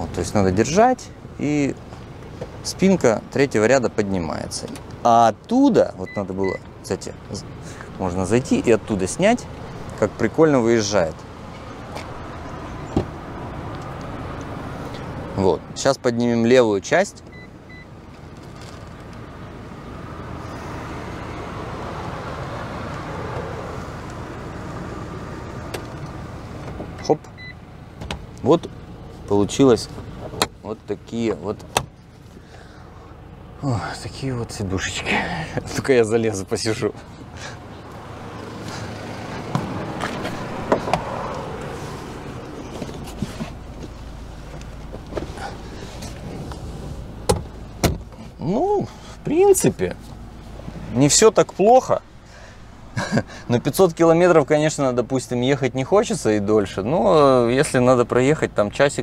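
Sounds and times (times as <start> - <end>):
clothing and upholstery rustling: 17.3 - 19.3, 36.6 - 53.8.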